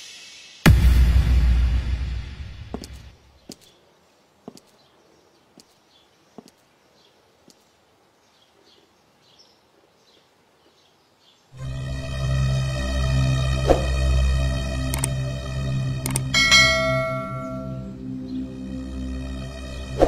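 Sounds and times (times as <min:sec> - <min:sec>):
music sting: 0:00.0 - 0:03.0, 0:11.6 - 0:20.0.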